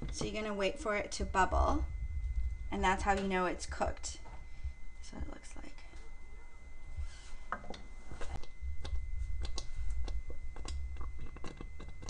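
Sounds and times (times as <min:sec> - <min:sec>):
low rumble: 0:00.0 - 0:12.0
thick paste bubbling in pot: 0:07.5 - 0:12.0.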